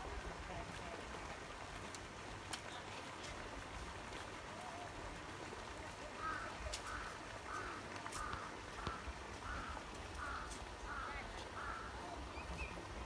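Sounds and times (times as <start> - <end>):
bird calling rough calls: 6.2 - 12.9.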